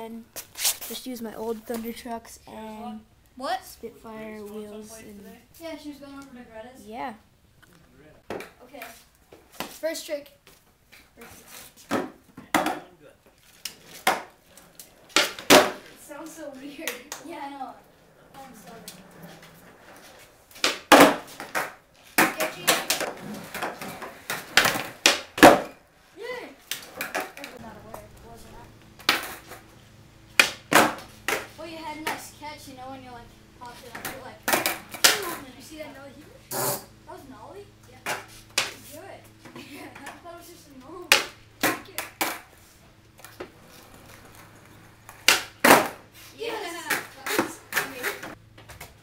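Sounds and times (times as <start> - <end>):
skateboard cracks and clatters: 13.5 - 16.0, 18.5 - 25.8, 26.7 - 27.6, 29.0 - 29.6, 30.4 - 32.2, 33.9 - 35.4, 41.1 - 42.5, 43.2 - 46.0, 46.9 - 48.9.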